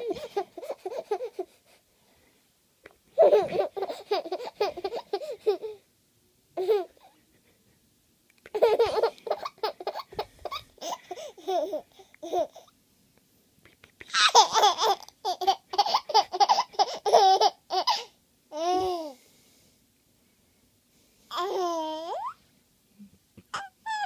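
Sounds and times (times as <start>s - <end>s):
baby laughing: 0.0s - 1.6s, 3.2s - 5.8s, 6.6s - 7.3s, 8.5s - 12.7s, 14.0s - 19.1s, 23.5s - 24.0s.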